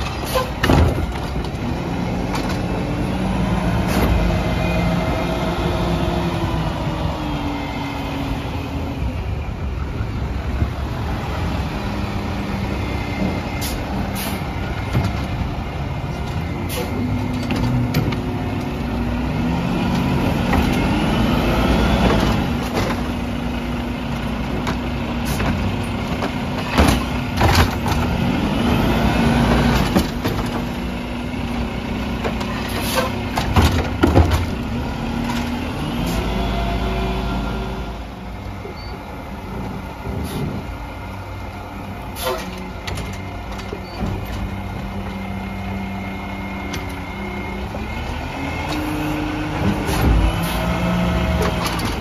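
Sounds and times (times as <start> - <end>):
trash cart banging: 0.0 - 2.8, 24.2 - 28.4, 29.0 - 31.0, 32.1 - 35.7
garbage truck engine hum: 0.0 - 52.0.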